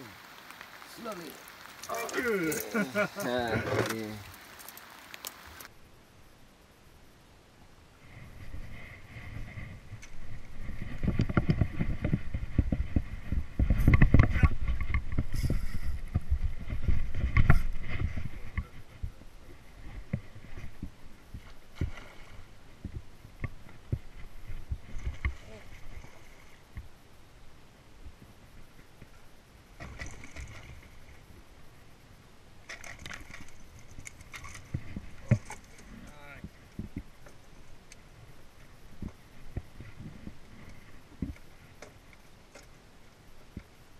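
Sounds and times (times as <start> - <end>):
fishing rod knocks and rattles: 32.7 - 35.9.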